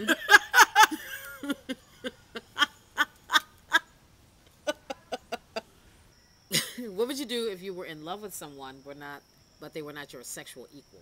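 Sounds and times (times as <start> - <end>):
woman laughing hard: 0.0 - 3.9, 4.6 - 5.7, 6.5 - 6.8.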